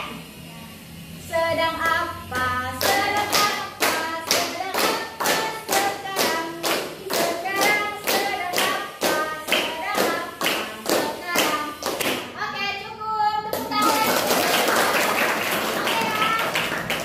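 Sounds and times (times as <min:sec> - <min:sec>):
voices chanting sing-song: 0:01.2 - 0:12.0
students clapping in rhythm: 0:01.8 - 0:12.3, 0:13.5 - 0:17.0.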